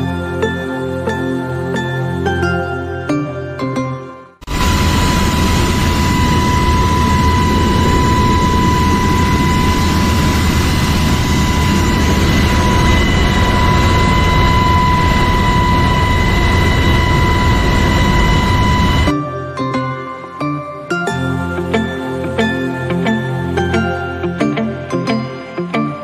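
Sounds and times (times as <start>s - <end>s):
high whine: 4.4s - 20.5s
helicopter rotor and engine rush: 4.5s - 19.2s.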